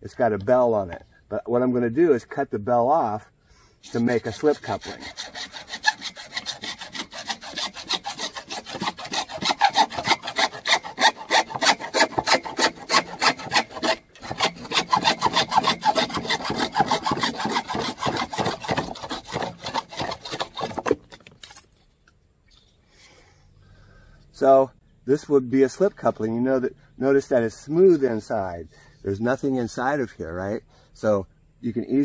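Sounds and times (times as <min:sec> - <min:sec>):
hand saw cutting plastic pipe: 0:03.8 - 0:21.6.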